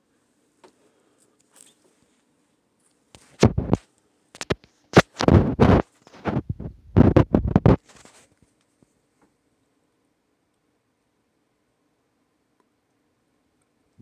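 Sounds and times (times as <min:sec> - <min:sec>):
rubbing on microphone: 0:03.2 - 0:09.0.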